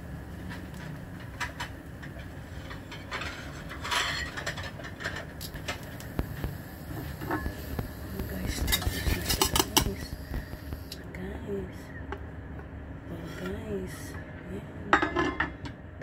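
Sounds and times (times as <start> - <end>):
low steady hum: 0.0 - 16.0
metal spoon scraping a pan: 2.5 - 5.2, 8.5 - 10.1.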